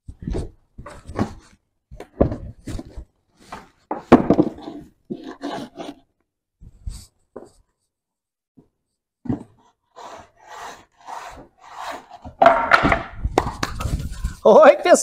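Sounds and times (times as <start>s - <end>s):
wooden boards knocking and scraping: 0.2s - 6.0s, 11.2s - 14.4s.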